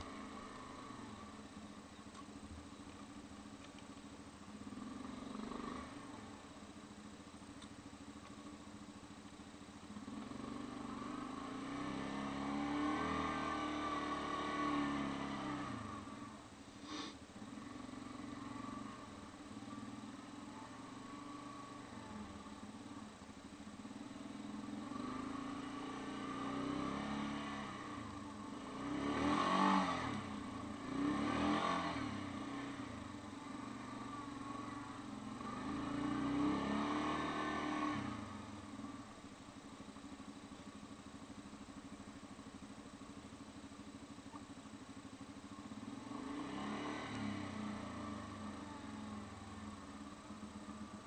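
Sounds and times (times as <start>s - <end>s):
quad engine revving: 10.1s - 17.1s, 24.8s - 38.5s, 45.9s - 49.5s.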